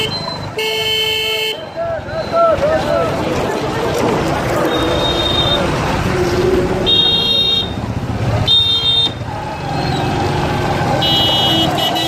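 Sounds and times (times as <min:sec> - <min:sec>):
motorcycle engines running: 0:01.9 - 0:12.0
high-pitched vehicle horn toots: 0:11.0 - 0:12.0.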